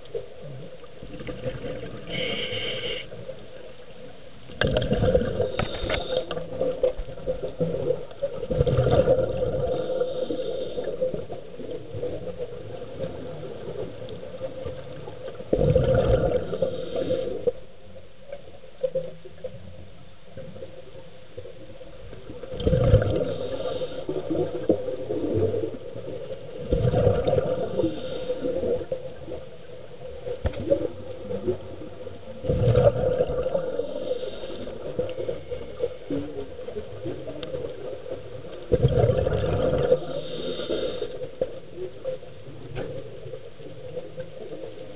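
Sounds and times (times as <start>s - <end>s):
exhaled bubbles rushing: 0.4s - 2.2s, 4.5s - 17.5s, 22.2s - 40.5s.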